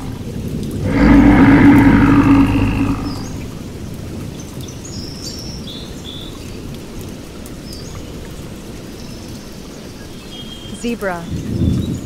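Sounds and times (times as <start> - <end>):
low rushing noise: 0.0 - 3.7.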